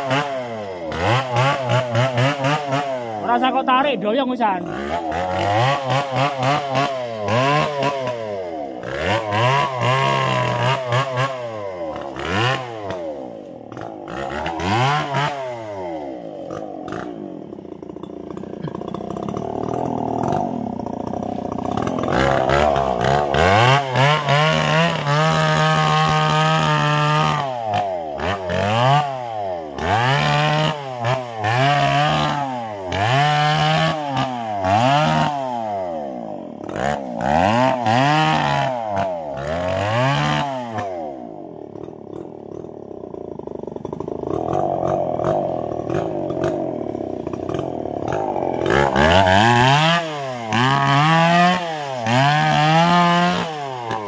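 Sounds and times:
chainsaw engine revving: 0.0 - 54.0.

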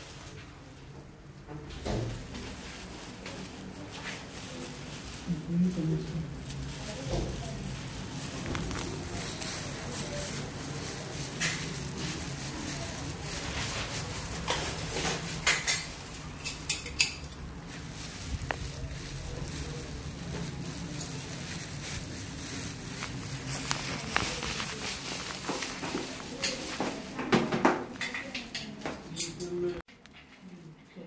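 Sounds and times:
hard objects clinking: 8.3 - 29.6.

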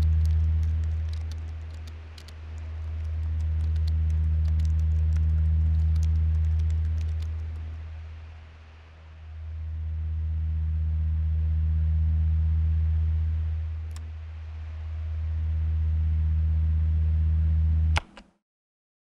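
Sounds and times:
deep sustained drone: 0.0 - 18.0
sharp click: 18.0 - 18.3.

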